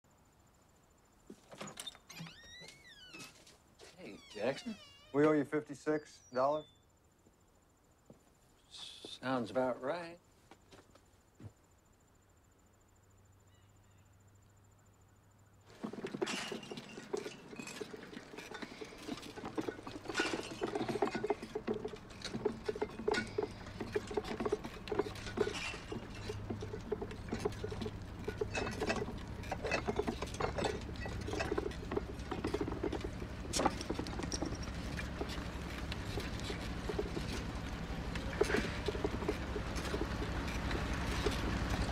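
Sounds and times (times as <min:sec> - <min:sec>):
busy clatter of knocks and rattles: 0:15.7 - 0:41.9
light clinks: 0:15.7 - 0:41.9.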